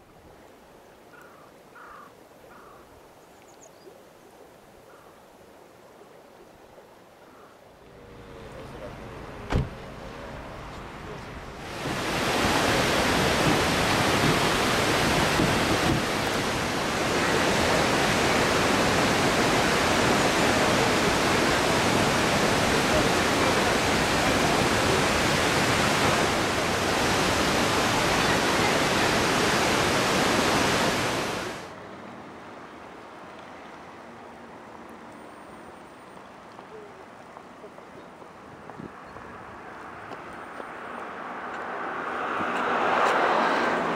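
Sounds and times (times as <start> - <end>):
waterfall rushing: 10.0 - 31.8.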